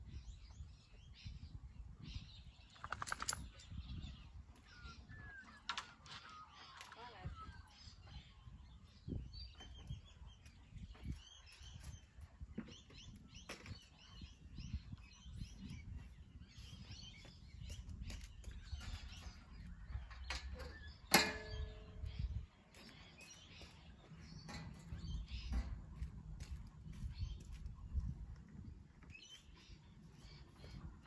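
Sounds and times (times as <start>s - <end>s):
birds chirping: 0.0s - 31.0s
sharp ringing clank: 21.1s - 22.1s.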